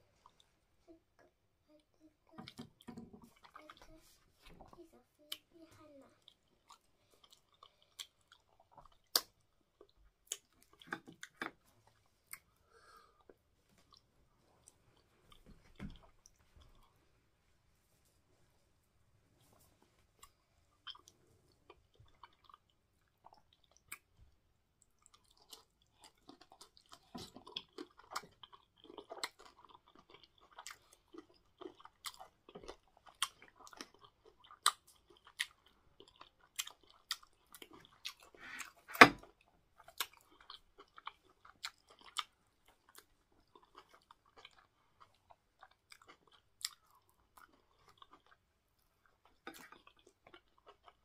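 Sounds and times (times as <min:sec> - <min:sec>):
mouth clicks and smacks chewing: 0:06.2 - 0:12.5, 0:20.2 - 0:24.2, 0:24.8 - 0:51.0.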